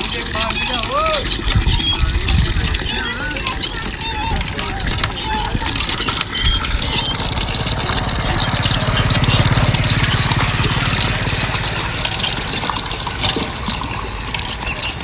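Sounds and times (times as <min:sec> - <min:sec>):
engine running steadily: 0:00.0 - 0:15.0
hand pump being worked: 0:00.0 - 0:15.0
water splashing: 0:00.0 - 0:15.0.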